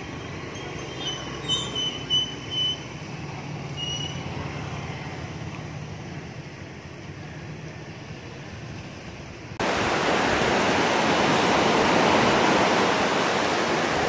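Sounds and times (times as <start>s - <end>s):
high-pitched squeals: 0.1s - 3.0s, 3.7s - 4.3s.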